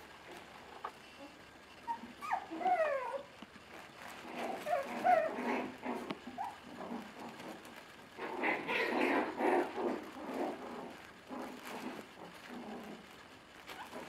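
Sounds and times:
puppies whimpering and yipping: 1.2 - 3.4, 4.3 - 7.4, 13.7 - 14.0.

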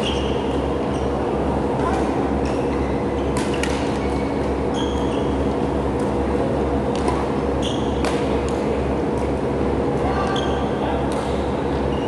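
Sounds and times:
sneaker squeaks on court: 0.0 - 1.2, 2.5 - 5.4, 7.6 - 8.3
loud steady low hum: 0.0 - 12.0
racket striking shuttlecock: 3.3 - 4.0, 6.9 - 7.3, 8.0 - 8.6.

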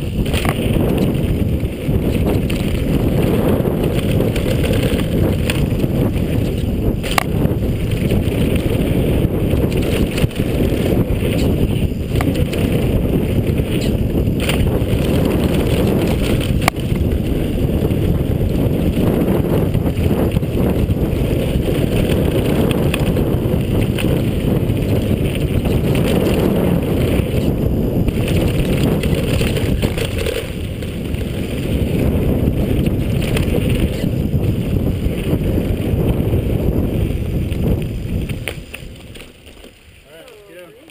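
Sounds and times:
bike clicks and knocks: 0.0 - 17.9, 20.0 - 31.7, 37.4 - 40.4
bike tyres rumbling over dirt: 0.0 - 40.8
wind buffeting microphone: 0.0 - 40.9.

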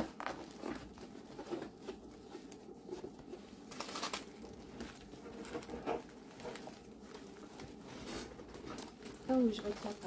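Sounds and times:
stiff canvas rustling and crinkling: 0.0 - 10.0.

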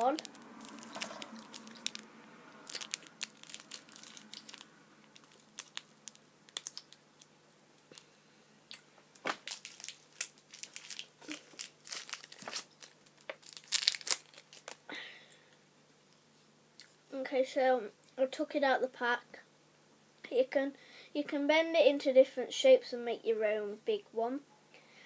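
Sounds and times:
candy wrapper crinkling: 0.0 - 8.1, 8.7 - 14.9.

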